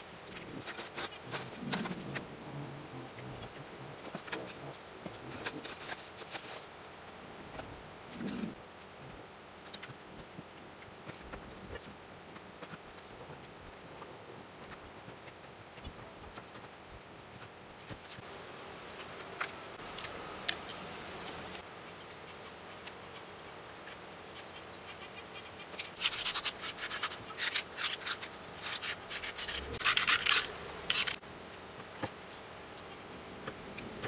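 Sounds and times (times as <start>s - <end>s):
crackly scratching: 0.0s - 18.3s, 18.9s - 31.2s
wire and paper scraping on metal: 0.3s - 2.3s, 3.2s - 6.7s, 25.7s - 31.2s.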